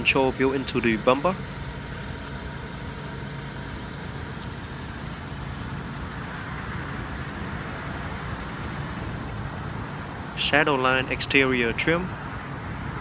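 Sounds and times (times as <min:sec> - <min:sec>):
low engine hum: 0:00.0 - 0:13.0
road traffic noise: 0:00.0 - 0:13.0.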